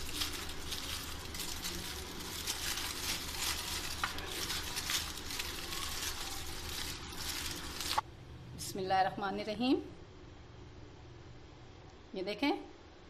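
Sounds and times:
aluminium foil crinkling: 0:00.0 - 0:08.0.

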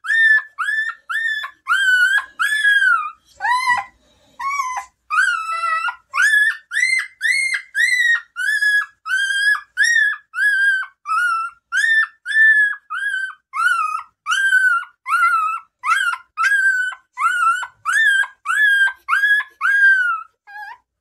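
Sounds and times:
puppy squealing: 0:00.0 - 0:21.0.

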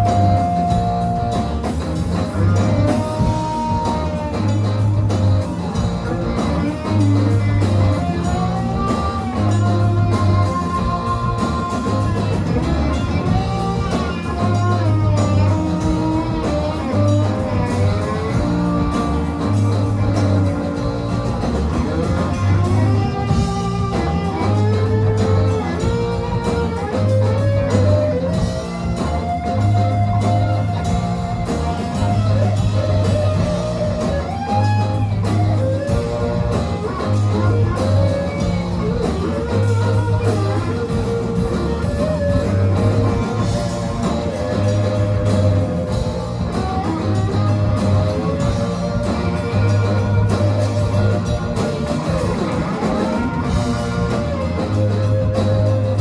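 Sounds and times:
drums: 0:00.0 - 0:56.0
electric guitar lead: 0:00.0 - 0:56.0.

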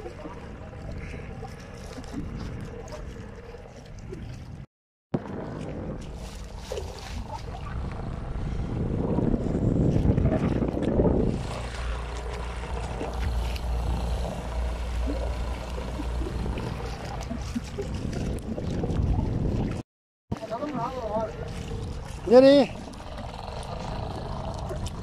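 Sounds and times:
water washing past hull: 0:00.0 - 0:19.8, 0:20.4 - 0:25.0
wind buffeting microphone: 0:00.0 - 0:19.8, 0:20.4 - 0:25.0
boat motor running: 0:05.2 - 0:19.8, 0:20.5 - 0:25.0.

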